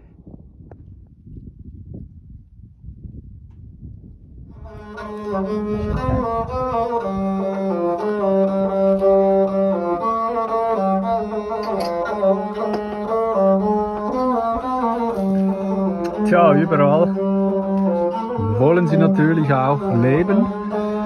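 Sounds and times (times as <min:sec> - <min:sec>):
string melody: 0:04.5 - 0:21.0
low drone note: 0:13.4 - 0:21.0.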